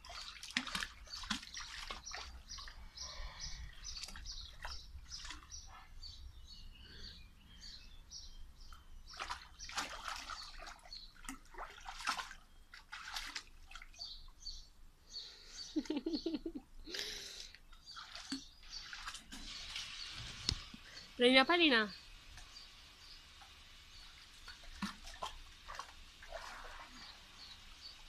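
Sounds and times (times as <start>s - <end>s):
dog splashing in water: 0.0s - 2.8s, 9.1s - 14.0s, 17.9s - 20.7s, 24.1s - 27.2s
bird chirping: 1.0s - 12.8s, 13.9s - 17.0s.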